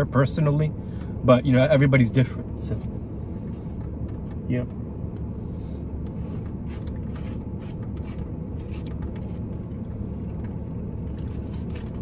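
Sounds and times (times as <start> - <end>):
low hum inside car cabin: 0.0 - 12.0
clicks and rustles of eating: 6.4 - 12.0.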